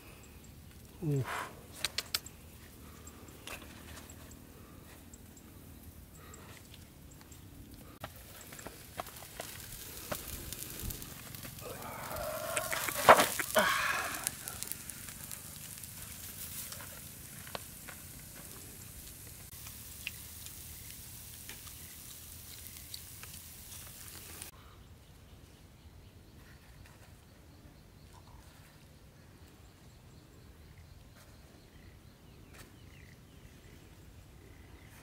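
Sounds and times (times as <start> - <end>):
fish sizzling on grill: 8.0 - 24.5.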